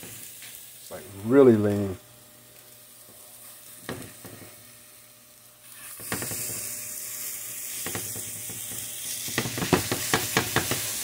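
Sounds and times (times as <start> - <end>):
burger patties sizzling in pan: 0.0 - 11.0.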